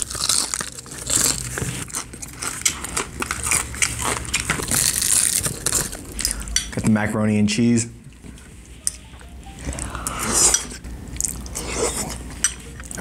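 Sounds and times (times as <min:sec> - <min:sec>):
person chewing crispy chicken: 0:00.0 - 0:06.5.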